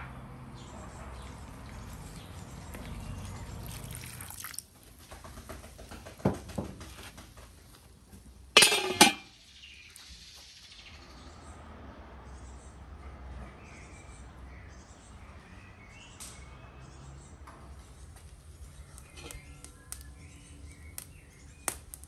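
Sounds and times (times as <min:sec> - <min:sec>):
meat frying: 0:03.6 - 0:04.7
water pouring into a pan: 0:03.6 - 0:04.7
metal lid clanking on pan: 0:08.6 - 0:09.3.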